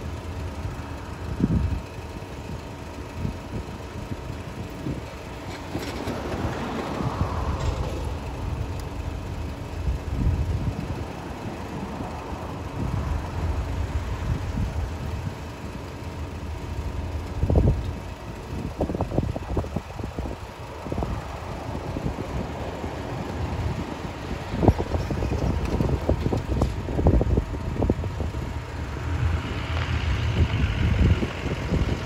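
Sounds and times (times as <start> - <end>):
wind buffeting microphone: 1.2 - 15.6, 16.6 - 32.0
car passing by: 5.5 - 8.2.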